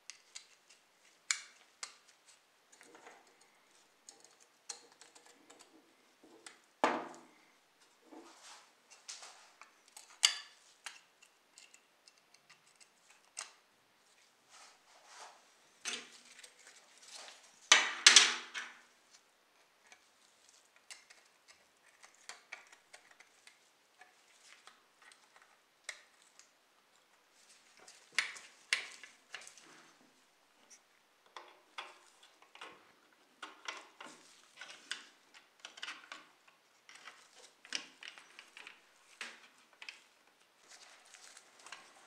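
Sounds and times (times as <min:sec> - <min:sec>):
model car parts clicking and rattling: 0:00.0 - 0:07.2, 0:09.8 - 0:13.6, 0:19.8 - 0:26.5, 0:31.2 - 0:42.0.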